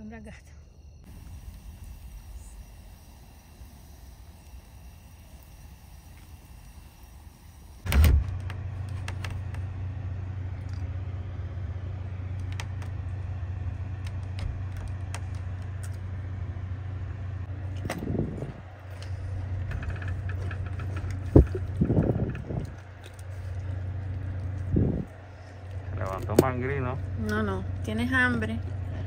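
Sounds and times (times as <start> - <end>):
steady low motor hum: 0.0 - 29.0
loud thump: 7.9 - 8.4.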